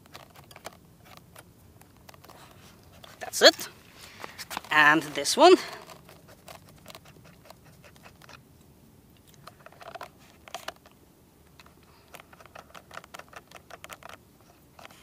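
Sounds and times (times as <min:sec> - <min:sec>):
faint scratching: 0:00.0 - 0:08.4.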